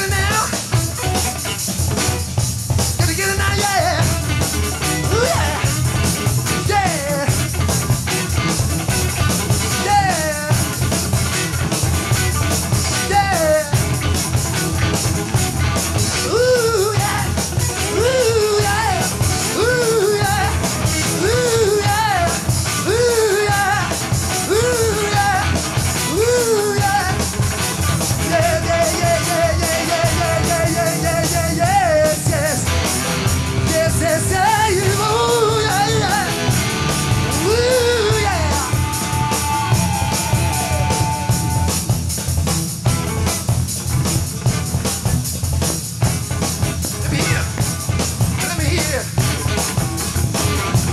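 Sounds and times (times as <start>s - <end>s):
hard rock band playing: 0.0s - 50.9s
person singing wails: 16.1s - 17.3s, 17.9s - 25.5s, 26.1s - 27.2s, 37.4s - 38.8s.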